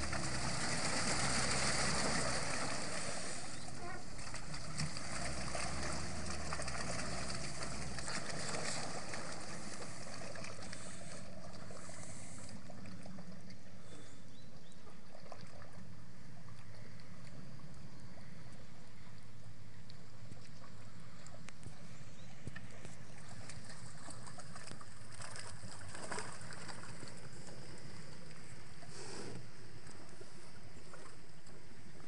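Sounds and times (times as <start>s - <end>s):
tracked vehicle engine running: 0.0s - 10.0s
low steady hum: 0.0s - 32.0s
water sloshing: 0.0s - 32.0s.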